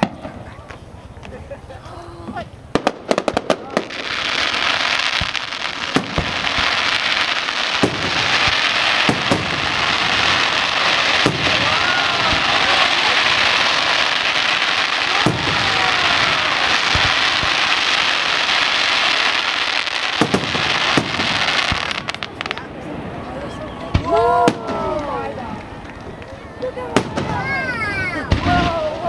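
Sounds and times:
fireworks crackling: 0.0s - 29.0s
firework shell bangs: 7.8s - 17.8s.

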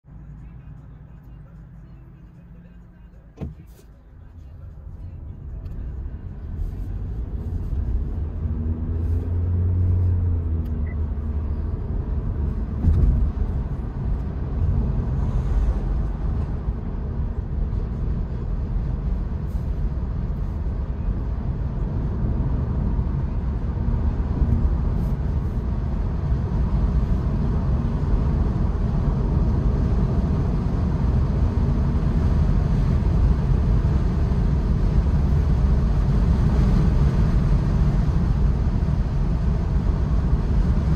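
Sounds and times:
road rumble inside car: 0.0s - 40.9s
short thump: 3.4s - 3.9s, 12.7s - 13.4s.

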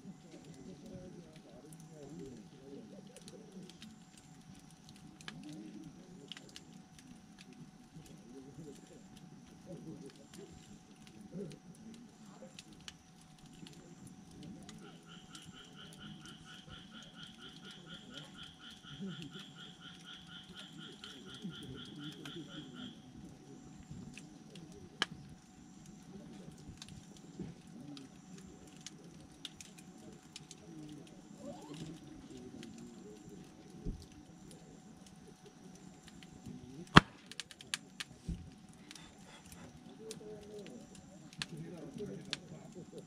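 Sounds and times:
campfire crackling: 0.0s - 43.0s
animal pulsed trill: 7.9s - 36.9s
sharp pop from fire: 36.9s - 37.5s.

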